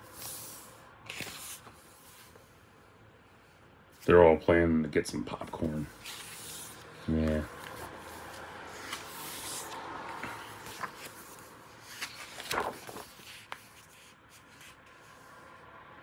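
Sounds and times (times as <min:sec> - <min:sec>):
paper pages rustling: 0:00.1 - 0:02.5, 0:05.3 - 0:15.2
page turning with crackle: 0:01.1 - 0:01.8, 0:07.6 - 0:14.9.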